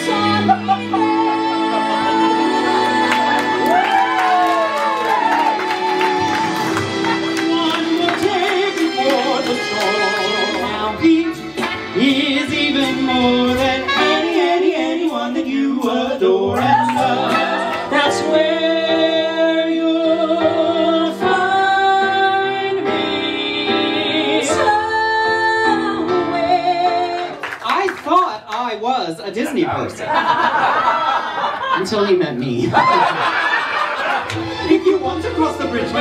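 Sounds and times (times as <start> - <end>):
musical accompaniment: 0.0 - 28.4, 32.8 - 36.0
two men singing: 6.6 - 24.8.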